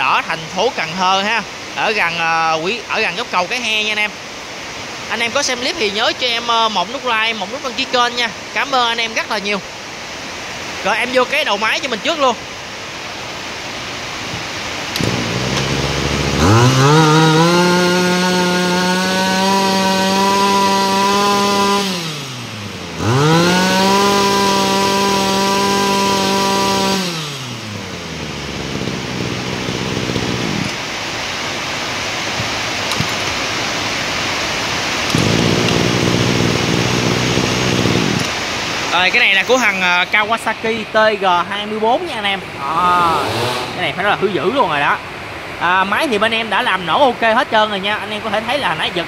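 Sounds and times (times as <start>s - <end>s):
brush-cutter engine idling: 14.9s - 30.8s, 35.1s - 40.0s
brush-cutter engine revving: 14.9s - 30.8s, 35.1s - 40.0s, 42.6s - 44.5s.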